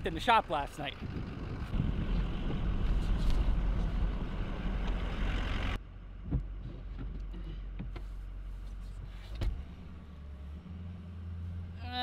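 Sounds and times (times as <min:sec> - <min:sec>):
truck idling hum: 0:00.0 - 0:06.3
truck engine and road rumble: 0:00.0 - 0:12.0.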